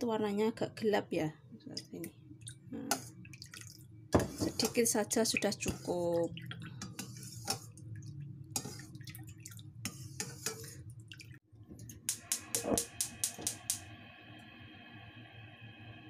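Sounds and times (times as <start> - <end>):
drips: 1.7 - 11.4
spoon stirring in metal bowl: 2.8 - 11.3.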